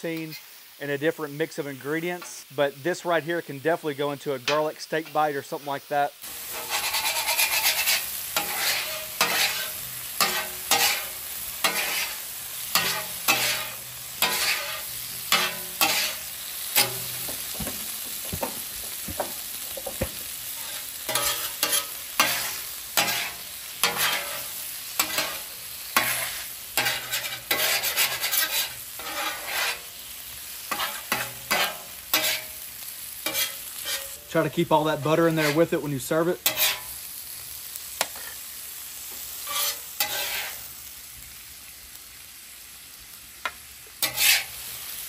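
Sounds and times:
shrimp sizzling: 0.0s - 45.0s
spatulas scraping on steel griddle: 6.2s - 37.0s, 38.0s - 38.5s, 39.1s - 40.8s, 43.4s - 45.0s.

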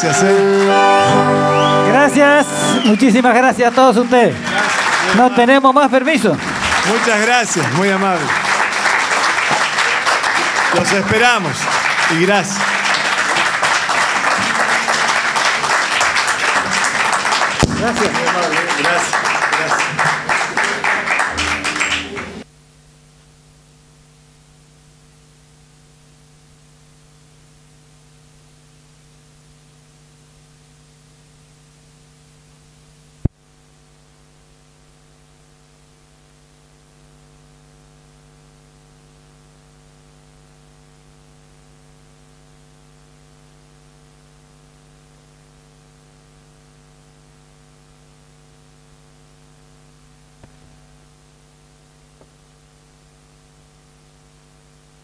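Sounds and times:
electrical mains hum: 1.0s - 55.0s
sharp pop: 17.6s - 18.2s.

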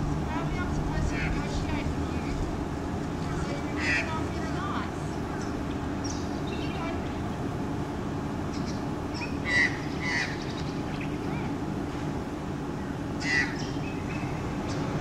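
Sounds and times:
low background rumble: 0.0s - 15.0s
magpie harsh calls: 3.4s - 4.5s, 8.5s - 11.6s, 13.2s - 14.4s.

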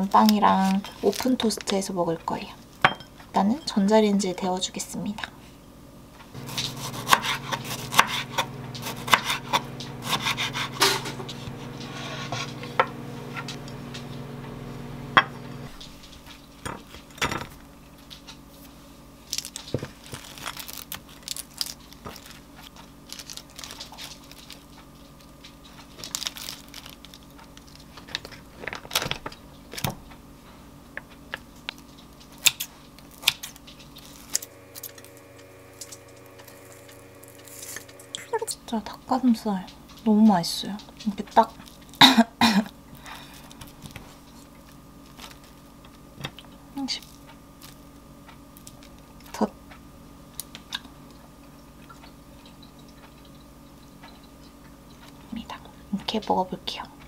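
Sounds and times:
lettuce rustling: 0.0s - 1.8s, 6.4s - 13.8s, 19.3s - 29.4s, 43.1s - 46.0s
appliance hum: 0.0s - 57.0s
knife cutting on wooden board: 6.4s - 13.5s.

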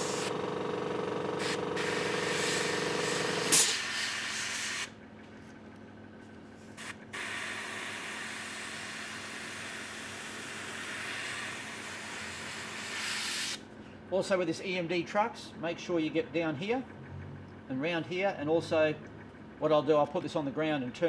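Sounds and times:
airbrush spray hiss: 0.0s - 0.3s, 1.4s - 4.9s, 6.8s - 13.6s
compressor humming: 0.0s - 21.0s
loud puff of air: 1.4s - 4.9s.

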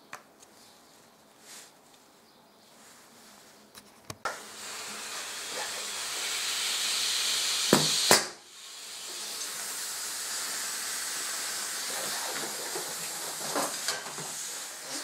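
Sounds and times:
compressed air hissing: 4.3s - 15.0s.

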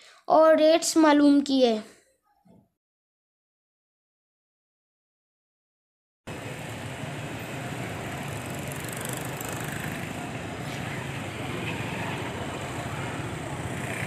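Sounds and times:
street traffic rumble: 6.3s - 14.0s.

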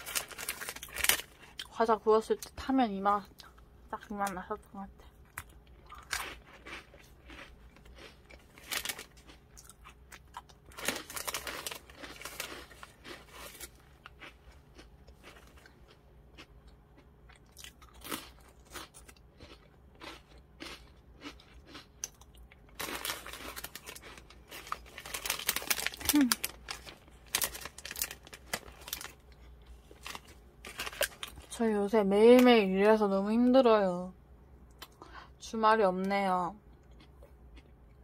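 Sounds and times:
foil packet rustling: 0.0s - 1.4s, 8.5s - 9.2s, 10.7s - 13.8s, 22.8s - 29.2s, 29.8s - 31.5s
crunchy snack chewing: 0.0s - 1.7s, 5.2s - 31.5s.

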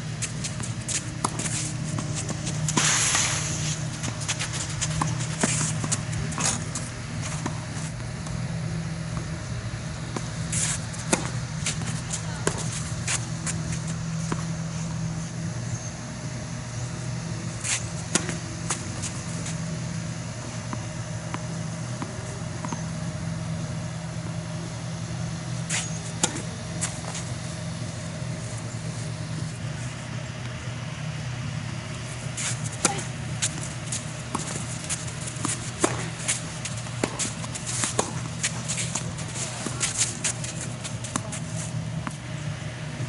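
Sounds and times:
low hum: 0.0s - 43.0s
racket hitting tennis ball: 0.2s - 7.8s, 10.1s - 14.5s, 17.6s - 19.5s, 25.7s - 27.4s, 32.2s - 42.2s.

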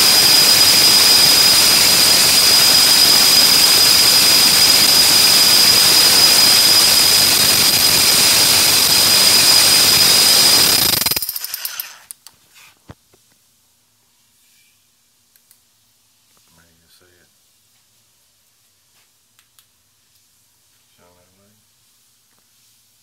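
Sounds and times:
rotary hammer motor whining: 0.0s - 12.1s.

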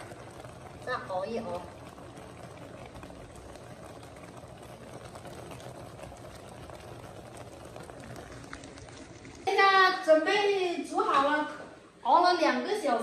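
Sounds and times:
small crackling pops: 0.0s - 9.6s
syrup bubbling in a wok: 0.0s - 12.1s.

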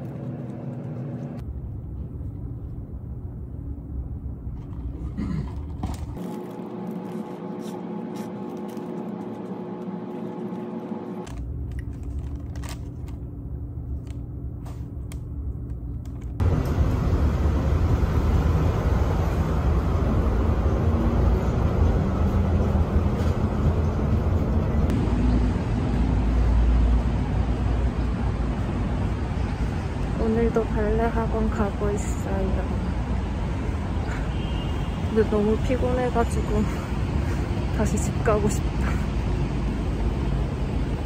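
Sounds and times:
steady hum with faint tones: 0.0s - 17.9s
city road traffic: 0.0s - 41.0s.

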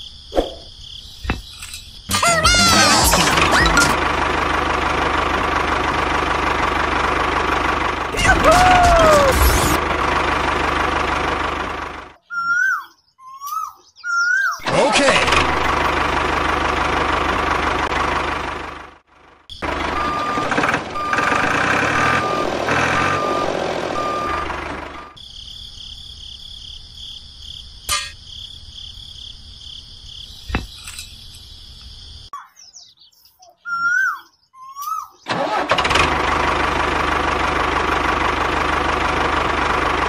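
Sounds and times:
tractor engine: 1.3s - 12.2s, 14.6s - 25.2s, 35.3s - 40.0s
short beeps: 22.0s - 25.1s.

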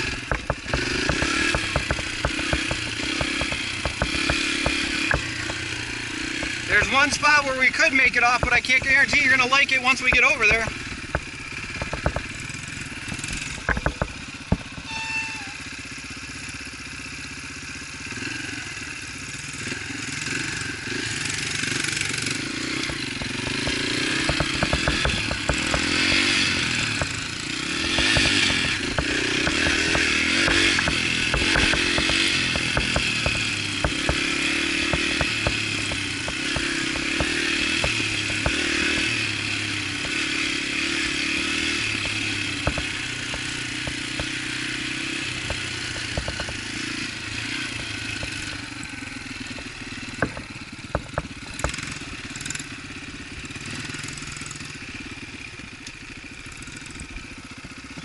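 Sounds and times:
sharp knocks and rattles: 0.0s - 14.9s, 21.4s - 52.7s
dirt bike engine revving: 0.0s - 58.0s.

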